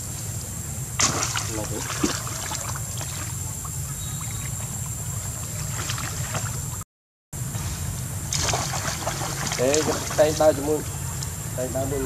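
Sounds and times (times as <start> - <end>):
water splashing and sloshing: 1.0 - 6.8, 8.3 - 11.4.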